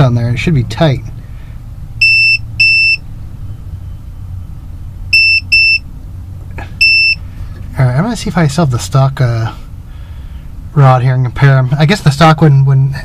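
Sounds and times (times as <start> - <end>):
continuity tester beeping: 2.0 - 4.0, 5.1 - 5.9, 6.8 - 7.2.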